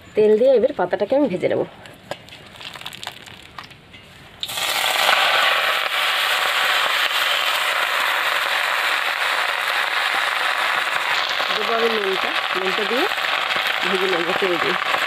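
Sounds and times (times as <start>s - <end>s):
leaves sizzling in hot oil: 2.5s - 3.6s, 4.4s - 15.0s.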